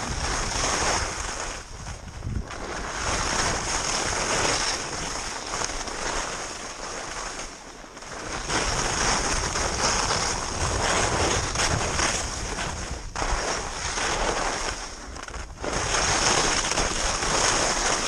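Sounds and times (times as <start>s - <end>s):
wind buffeting microphone: 0.0s - 5.2s
skis scraping over snow: 0.0s - 18.0s.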